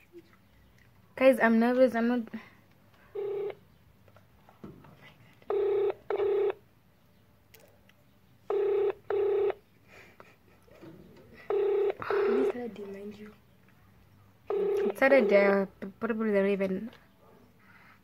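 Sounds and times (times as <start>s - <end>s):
phone ringback tone: 3.2s - 3.6s, 5.5s - 6.6s, 8.5s - 9.6s, 11.4s - 12.6s, 14.5s - 15.6s.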